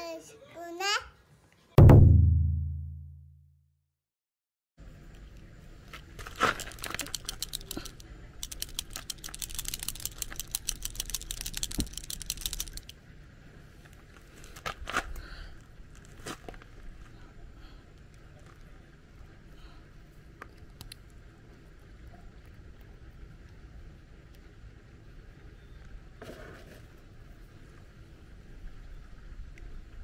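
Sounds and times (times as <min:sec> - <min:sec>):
paint pen ball rattling: 0:06.6 - 0:12.9
handling clicks: 0:06.7 - 0:12.9.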